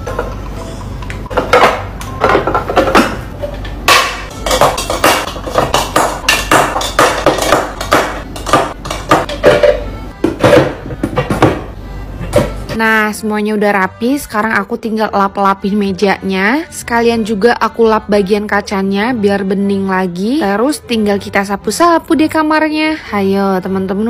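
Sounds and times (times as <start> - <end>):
cosmetic bottles clinking: 0.0 - 11.7.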